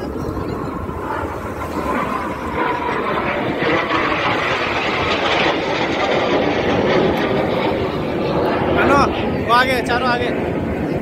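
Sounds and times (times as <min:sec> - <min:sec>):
jet engine flying past: 0:00.0 - 0:11.0.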